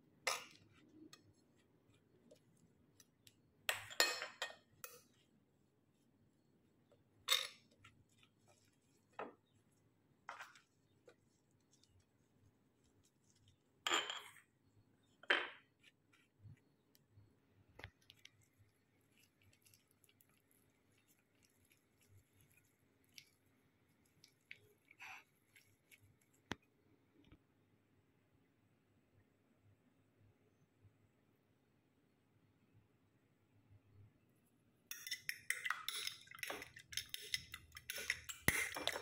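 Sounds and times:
hands tapping and rustling bread: 0:05.0 - 0:13.8.

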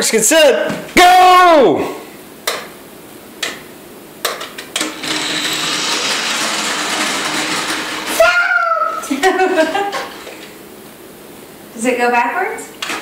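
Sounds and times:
toy car electric motor whirring: 0:04.8 - 0:09.0.

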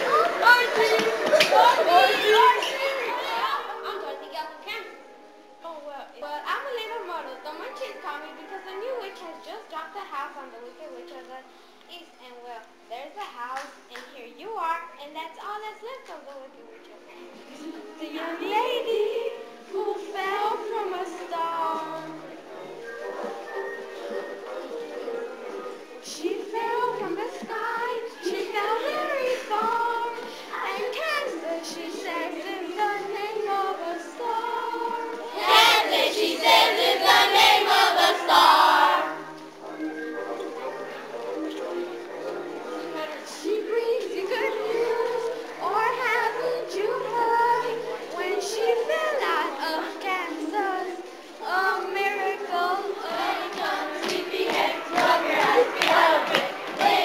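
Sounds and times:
children singing in chorus: 0:26.2 - 0:39.3, 0:43.9 - 0:57.0.

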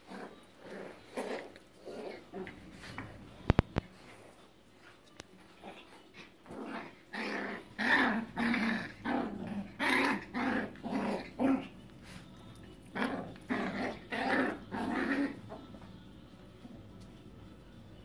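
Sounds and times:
small dogs growling: 0:00.0 - 0:02.9, 0:05.5 - 0:12.2, 0:12.8 - 0:15.6.

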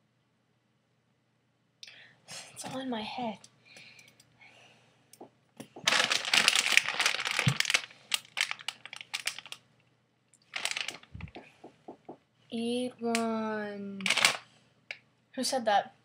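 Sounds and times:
packet crinkling: 0:05.8 - 0:09.6, 0:10.4 - 0:11.5, 0:14.0 - 0:14.4
small clicks and crackles: 0:05.9 - 0:09.6, 0:10.3 - 0:11.5.

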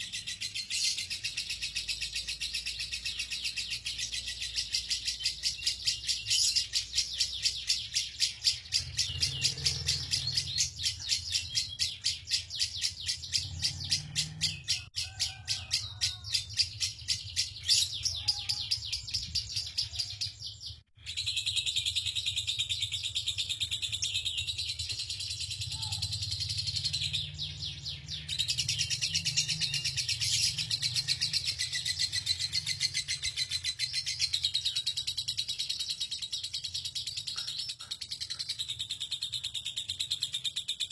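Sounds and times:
lovebird chattering: 0:21.0 - 0:40.9.

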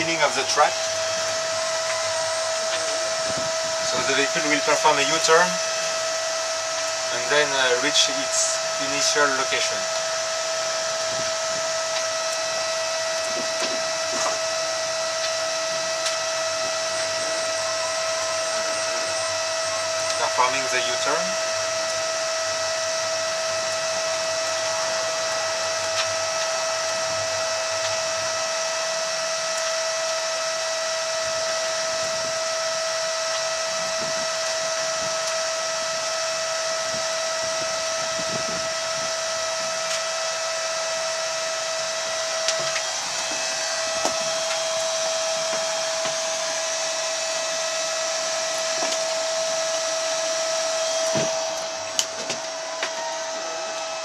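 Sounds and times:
high whine: 0:00.0 - 0:54.0
electric vehicle whirring and hiss: 0:42.6 - 0:54.0.

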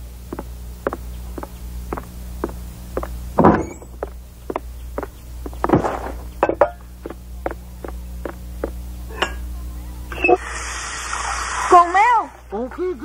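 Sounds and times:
cartoon footsteps on wooden floor: 0:00.3 - 0:06.4, 0:07.0 - 0:08.8
tap water hissing: 0:10.1 - 0:12.5.

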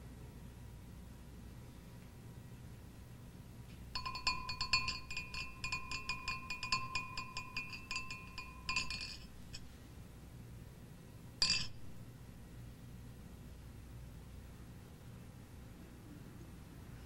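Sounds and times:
wine glasses clinking: 0:04.0 - 0:09.6, 0:11.4 - 0:11.9.

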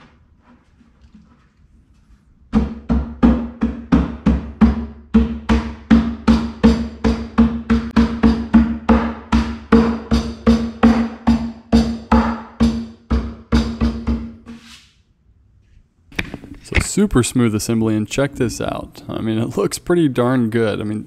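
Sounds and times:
fist knocking on wooden board: 0:02.5 - 0:14.4.

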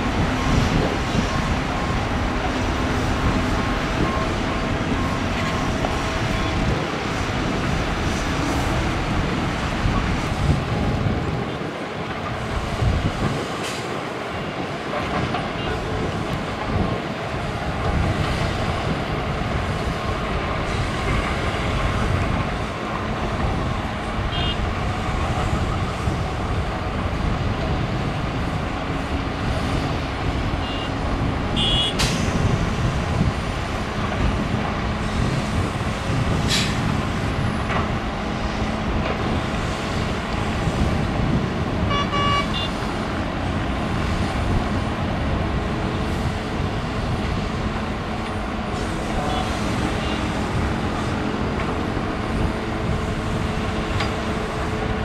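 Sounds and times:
diesel engines under load: 0:00.0 - 0:55.0
short horn toots: 0:41.9 - 0:42.7.

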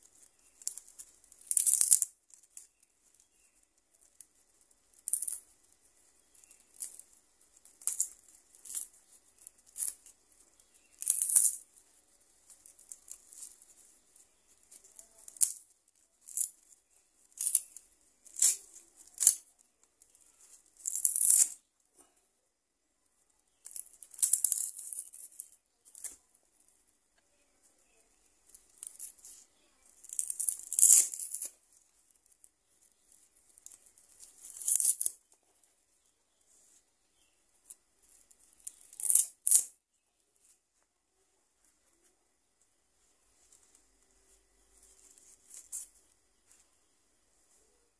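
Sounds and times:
dry sinew fibres tearing: 0:00.0 - 0:21.7, 0:28.5 - 0:35.3, 0:38.1 - 0:39.8.

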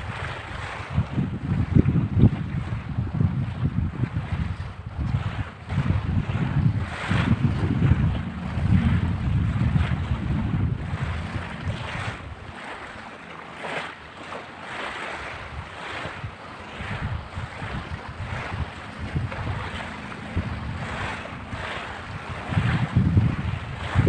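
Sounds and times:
wind on microphone: 0:00.0 - 0:24.0
waves washing on pebbles: 0:05.3 - 0:24.0.

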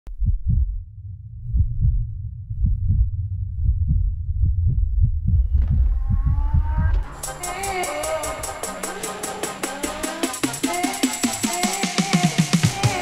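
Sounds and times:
heartbeat double thuds: 0:00.1 - 0:07.2
steady low rumble: 0:00.1 - 0:10.1.

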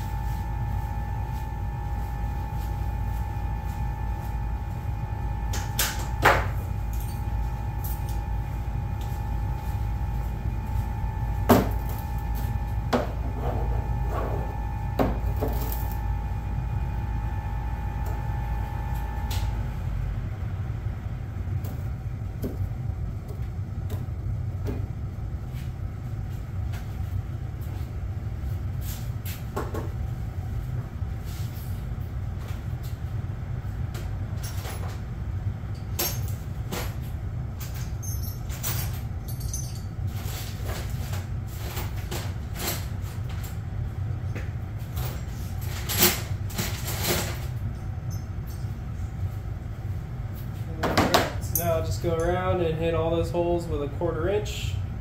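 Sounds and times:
steady low rumble: 0:00.0 - 0:55.0.

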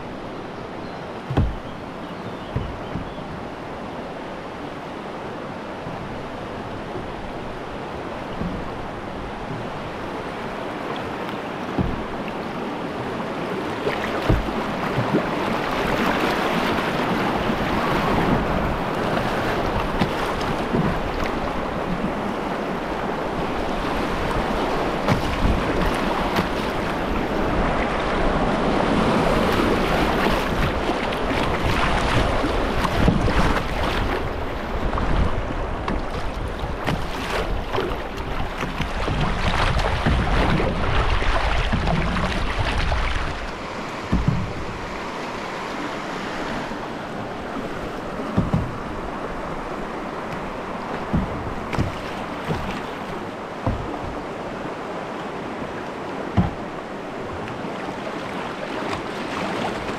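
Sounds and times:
river rapid rushing: 0:00.0 - 0:59.9
water splashing against canoe hull: 0:01.1 - 0:59.9
short knocks: 0:01.3 - 0:01.8, 0:02.4 - 0:03.4, 0:11.7 - 0:12.2, 0:44.1 - 0:44.8, 0:48.3 - 0:49.0, 0:50.3 - 0:52.8, 0:56.3 - 0:56.7
wind buffeting microphone: 0:14.2 - 0:45.2.

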